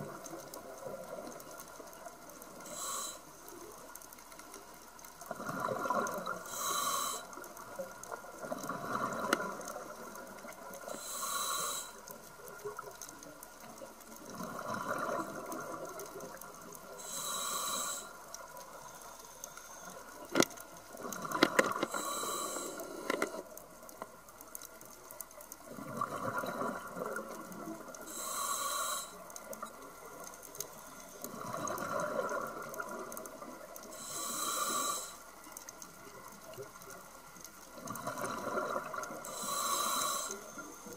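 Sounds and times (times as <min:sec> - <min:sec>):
regulator inhale hiss: 0:02.2 - 0:03.8, 0:06.0 - 0:07.6, 0:10.8 - 0:12.2, 0:16.9 - 0:20.4, 0:21.5 - 0:23.6, 0:28.0 - 0:29.6, 0:33.8 - 0:35.7, 0:39.1 - 0:40.9
exhaled bubbles gurgling: 0:05.3 - 0:11.5, 0:14.2 - 0:18.0, 0:25.6 - 0:30.2, 0:31.3 - 0:35.1, 0:37.7 - 0:40.9.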